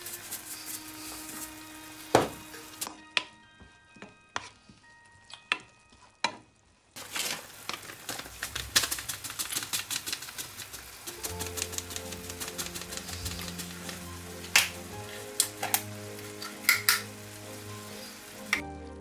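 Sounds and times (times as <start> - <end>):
rapid clicks and crackles: 7.0 - 14.8
utensils clinking on dishes: 15.4 - 17.2.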